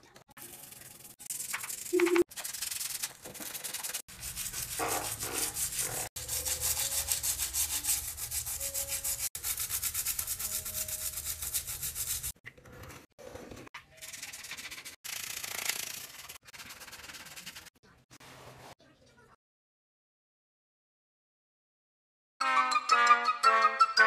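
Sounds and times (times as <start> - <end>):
toothbrush scrubbing tile grout: 0.3 - 12.4, 13.8 - 18.6.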